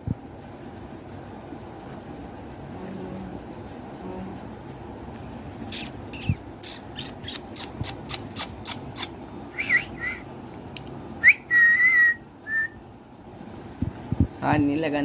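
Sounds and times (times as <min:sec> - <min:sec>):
kissing clicks: 0:05.6 - 0:12.8
person whistling: 0:09.6 - 0:10.2, 0:11.2 - 0:12.8.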